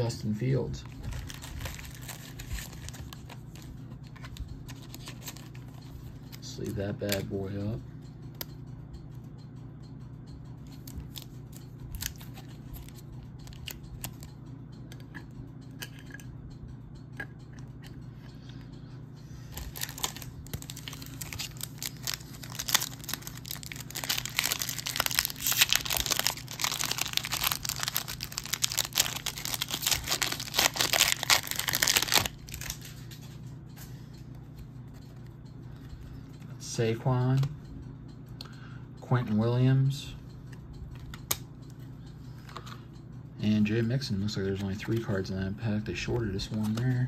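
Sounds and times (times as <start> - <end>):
wrapper tearing and crinkling: 1.1 - 3.3, 19.6 - 32.9
cards clicking: 19.5 - 33.2.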